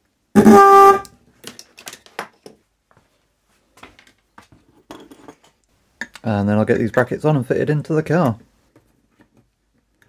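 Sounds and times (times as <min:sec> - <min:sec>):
electric car horn blast: 0:00.4 - 0:01.1.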